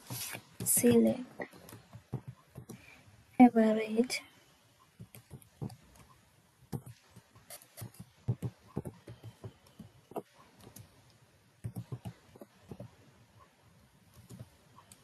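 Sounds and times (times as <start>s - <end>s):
computer keyboard typing: 5.0s - 10.9s, 11.6s - 13.0s, 14.1s - 15.0s.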